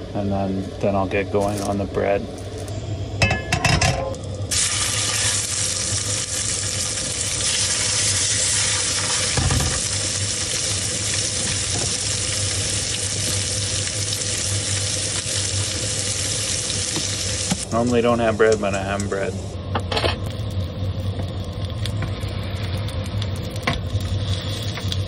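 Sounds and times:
fish sizzling in a frying pan: 4.5 - 17.6, 22.1 - 25.0.

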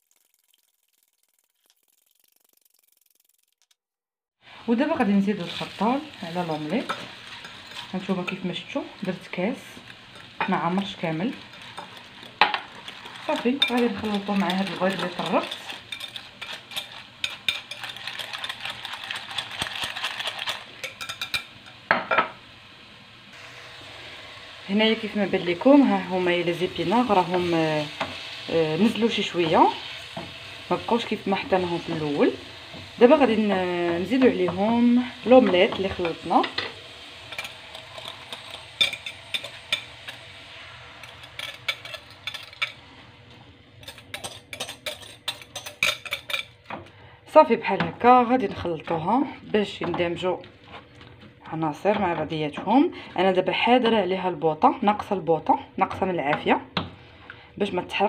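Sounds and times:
egg mixture being poured: 0.0 - 3.7
spinach sizzling in oil: 0.0 - 3.7, 4.4 - 55.3.

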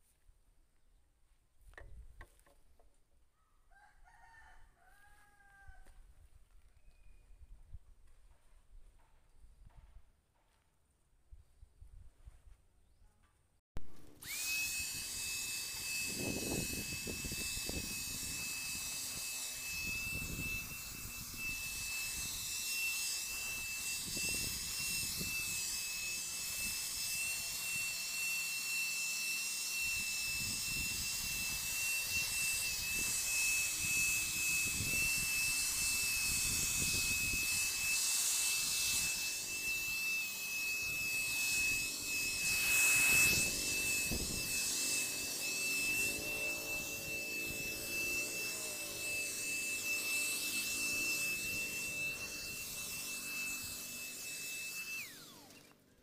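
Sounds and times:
electric paint spray gun whine: 13.8 - 56.0.

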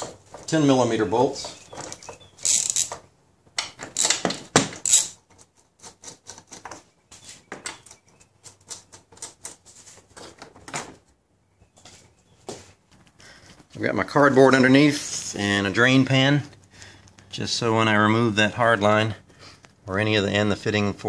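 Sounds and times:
socket ratchet clicking: 2.4 - 2.9, 4.8 - 5.2.

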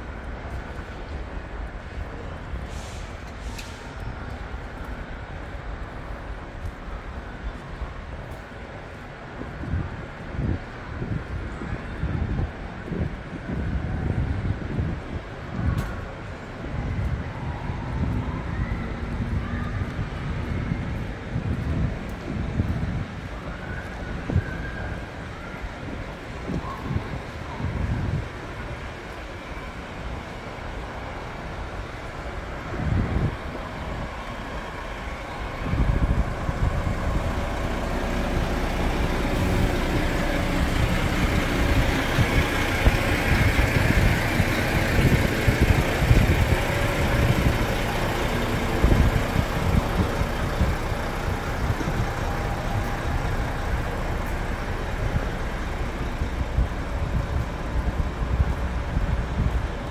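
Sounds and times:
wind rumble on microphone: 0.0 - 59.9
vehicle engine running: 32.9 - 59.9.

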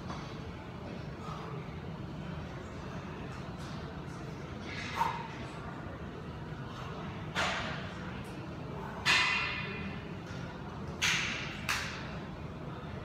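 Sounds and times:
metal clanks of squat rack: 9.0 - 9.8.

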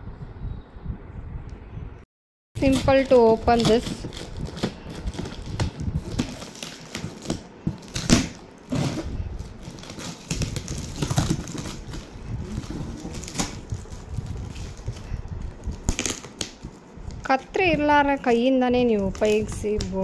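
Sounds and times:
cardboard box tape being torn: 2.6 - 13.9, 15.7 - 16.6.

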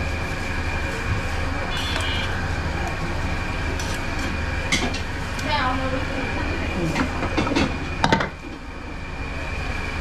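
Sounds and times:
thin high whine: 0.0 - 3.7.

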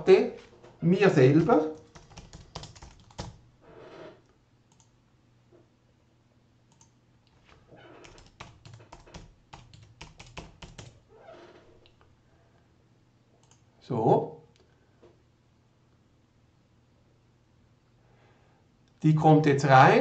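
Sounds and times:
typing on keyboard: 1.4 - 3.4, 6.7 - 6.9, 8.0 - 11.0.

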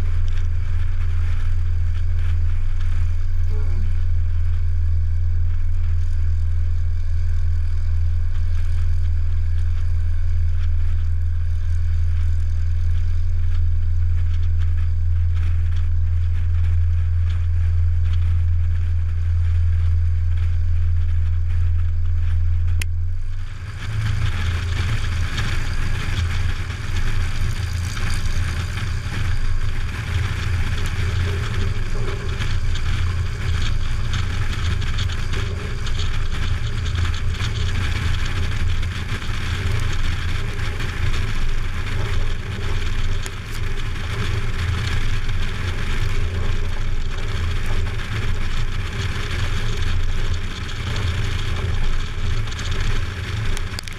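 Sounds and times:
light aircraft engine: 0.0 - 53.9
rushing wind: 0.0 - 53.9
wheels rumbling on grass: 0.0 - 53.9.

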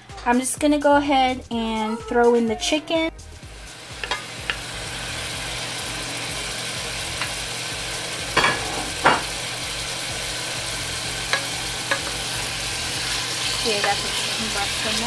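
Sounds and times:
chicken sizzling in oil: 3.4 - 15.0.

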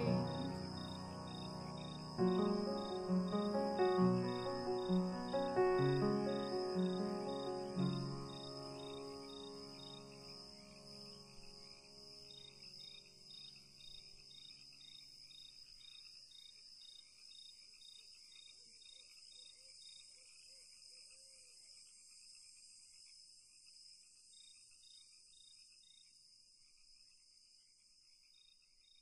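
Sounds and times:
background music: 0.0 - 10.4
faint pulsing insect chirping: 0.0 - 29.0.

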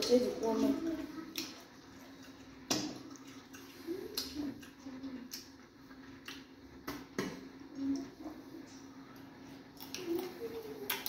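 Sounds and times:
wet eating clicks and lip smacks: 1.3 - 6.5.

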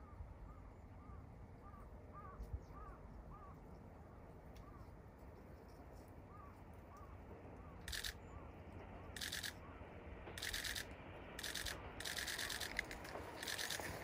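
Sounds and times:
camera shutter clicking bursts: 7.9 - 8.2, 9.2 - 9.6, 10.4 - 14.0.

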